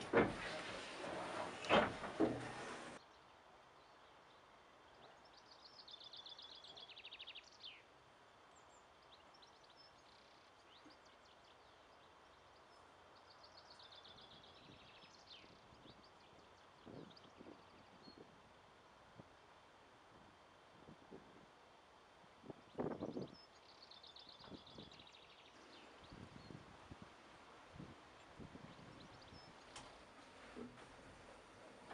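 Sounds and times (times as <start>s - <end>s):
windmill gearing noise: 0.0s - 3.0s, 25.6s - 31.9s.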